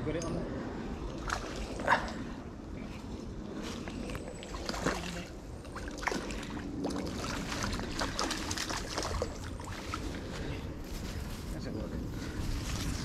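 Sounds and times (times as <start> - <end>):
fish splashing in water: 3.8 - 10.3.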